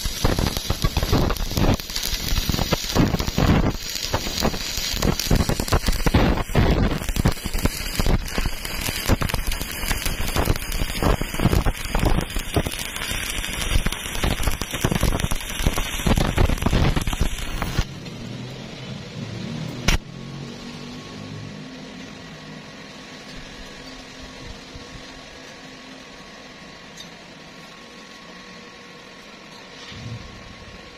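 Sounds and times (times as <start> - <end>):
steady hum: 0.0 - 18.0
welding arc crackling: 0.0 - 20.8.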